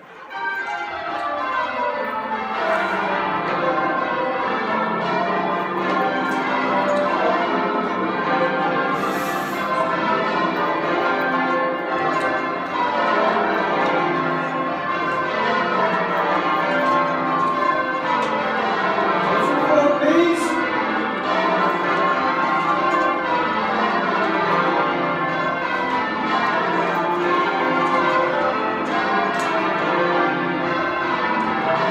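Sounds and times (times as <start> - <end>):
church bells ringing: 0.0 - 31.9.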